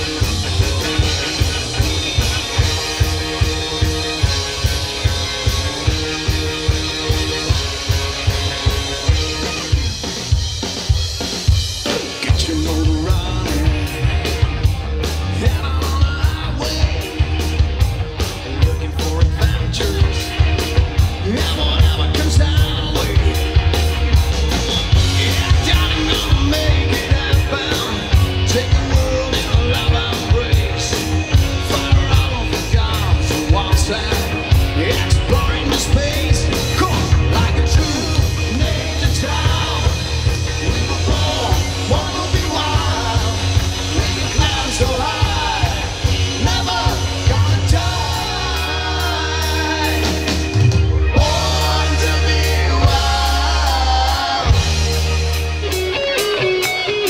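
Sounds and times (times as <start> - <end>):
man singing and shouting: 0.0 - 10.0, 11.8 - 23.8, 24.8 - 55.0
bass guitar: 0.0 - 57.0
drum kit beat: 0.0 - 57.0
electric guitar: 0.0 - 57.0.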